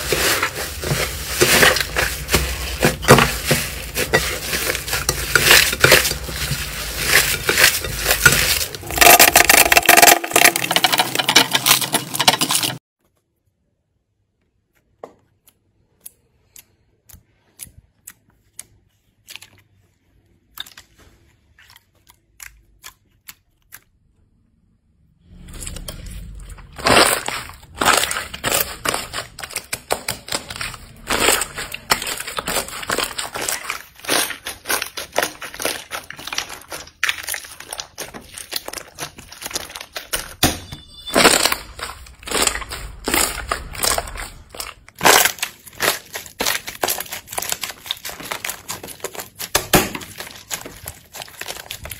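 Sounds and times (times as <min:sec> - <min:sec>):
slime crackling and popping: 0:26.8 - 0:51.9.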